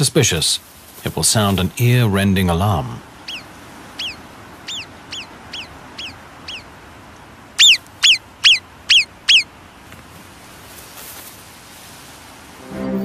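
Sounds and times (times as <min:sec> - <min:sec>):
marmot alarm whistles: 0:03.3 - 0:06.7, 0:07.6 - 0:09.5.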